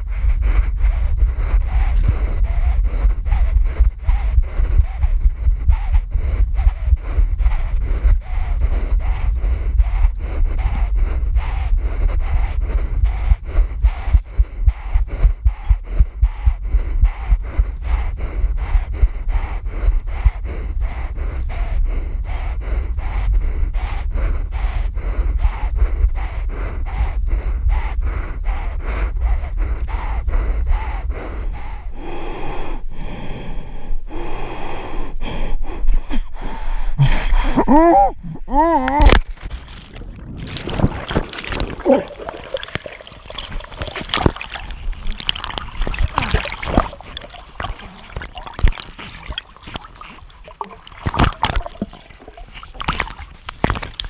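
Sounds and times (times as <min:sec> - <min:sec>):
wind rumble on microphone: 0:00.0 - 0:32.0, 0:38.2 - 0:54.0
man breathing heavily and gasping: 0:00.0 - 0:54.0
short vocal cry: 0:37.6 - 0:39.1.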